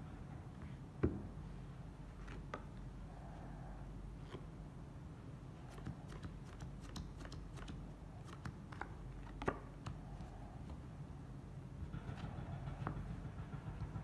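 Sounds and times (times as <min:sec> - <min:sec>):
low steady hum: 0:00.0 - 0:14.0
playing cards clicking and flicking: 0:05.7 - 0:10.8.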